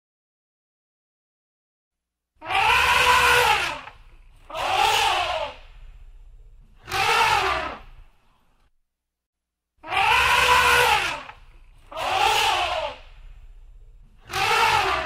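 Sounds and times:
elephant trumpeting: 2.4s - 6.0s, 6.8s - 8.0s, 9.8s - 15.0s
low rumble: 5.5s - 6.9s, 13.0s - 14.3s.

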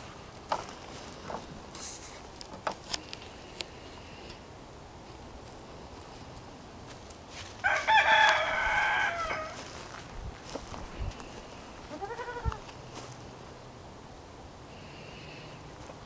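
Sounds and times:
rooster crowing: 7.6s - 9.8s
short animal call: 11.9s - 12.6s.

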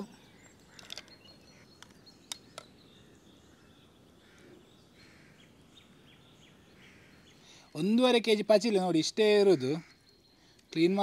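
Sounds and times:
faint bird chirps: 0.0s - 11.0s
mussel shells clicking apart: 0.7s - 1.2s.

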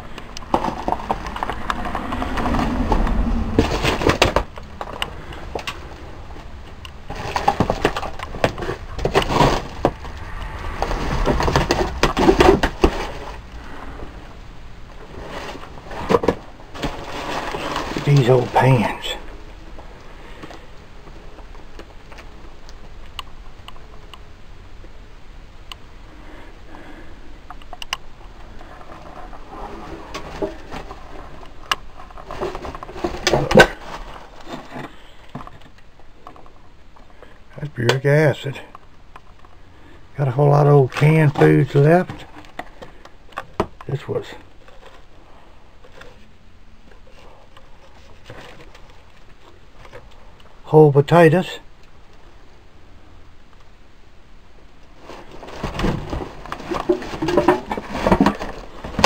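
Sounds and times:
objects knocking and clattering: 0.1s - 5.8s, 7.1s - 13.4s, 28.7s - 36.5s, 55.2s - 59.0s.

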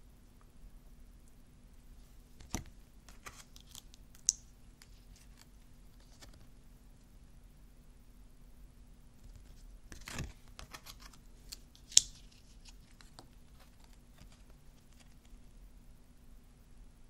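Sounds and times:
cards clicking and sliding: 2.4s - 6.5s, 9.3s - 15.3s.

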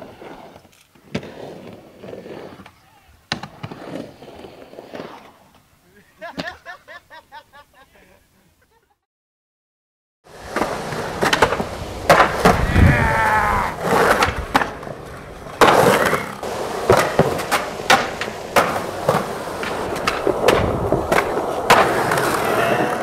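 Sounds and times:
skateboard squealing scrape: 0.0s - 5.6s, 10.4s - 23.0s
skateboard wheels rolling on concrete: 0.0s - 7.3s, 10.2s - 23.0s
skateboard clacks and knocks: 10.3s - 13.0s, 13.6s - 23.0s.

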